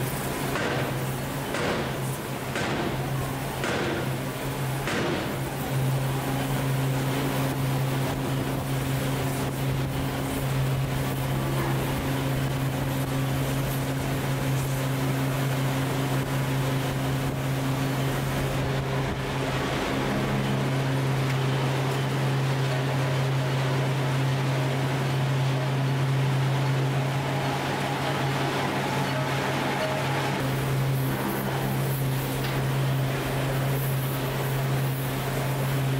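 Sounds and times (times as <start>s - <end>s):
machinery humming and rumbling: 0.0s - 35.9s.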